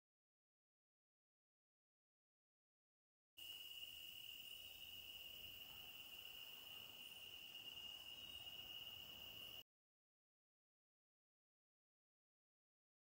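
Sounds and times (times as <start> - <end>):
high-pitched insect drone: 3.4 - 9.6.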